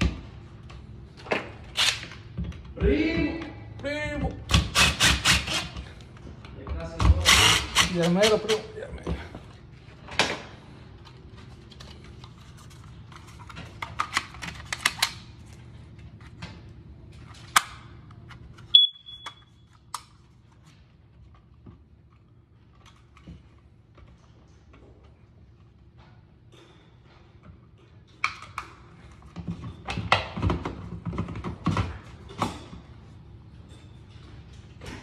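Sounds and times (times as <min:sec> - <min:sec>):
smoke alarm beep: 0:18.7 - 0:19.6.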